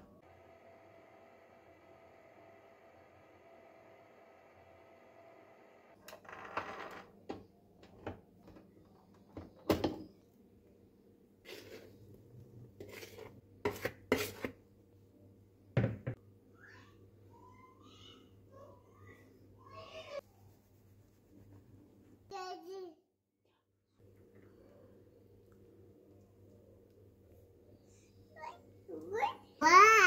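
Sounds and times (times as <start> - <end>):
stand mixer motor hum: 0.2 - 6.0.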